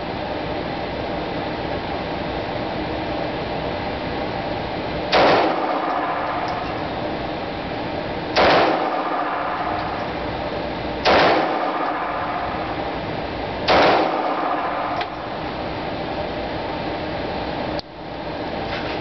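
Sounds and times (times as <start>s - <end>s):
steady background hiss: 0.0s - 19.0s
pistol shots ringing indoors: 5.1s - 7.7s, 8.3s - 15.9s.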